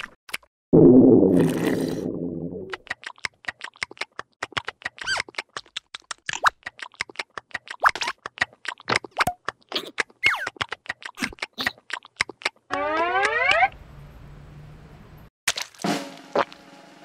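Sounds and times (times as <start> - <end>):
rising pitched glide: 12.7 - 13.8
squeaky pitch glides: 12.7 - 13.8.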